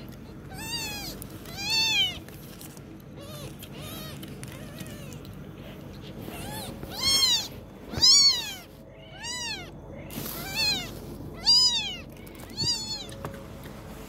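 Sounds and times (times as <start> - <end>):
kitten mewing: 0.5 - 2.2, 3.2 - 5.3, 6.0 - 13.1.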